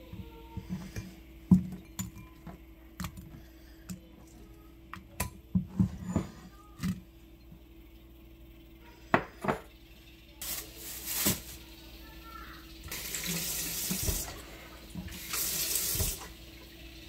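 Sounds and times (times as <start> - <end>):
tap running into sink: 12.9 - 14.3, 14.9 - 16.3.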